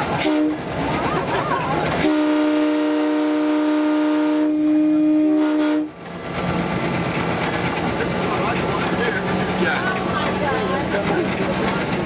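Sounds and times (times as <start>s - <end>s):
moving train rushing noise: 0.0s - 12.0s
locomotive horn chord: 0.2s - 0.6s, 2.0s - 6.0s.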